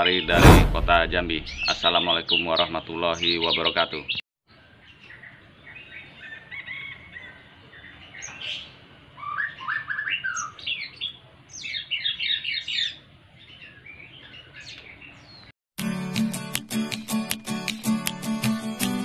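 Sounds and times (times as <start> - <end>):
fledgling birds chirping: 1.6 - 15.5.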